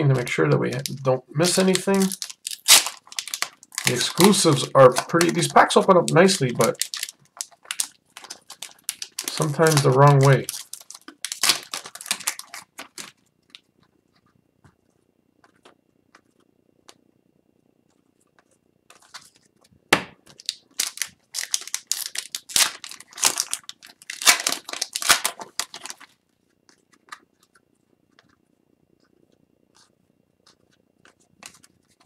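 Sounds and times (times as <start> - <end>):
wrapper crinkling and tearing: 0.2 - 13.6, 20.3 - 26.2
wrapper snap: 0.8 - 13.2, 20.0 - 26.1.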